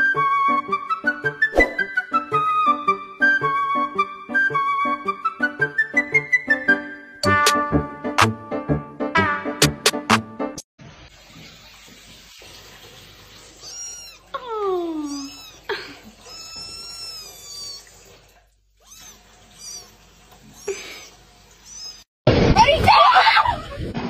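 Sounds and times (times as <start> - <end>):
kitten meowing: 13.6 - 17.9, 18.8 - 19.9, 21.6 - 22.1.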